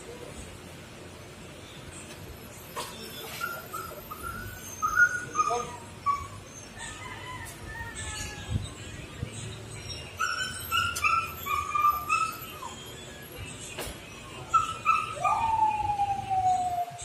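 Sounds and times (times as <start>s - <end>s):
animal whining: 10.1s - 13.3s.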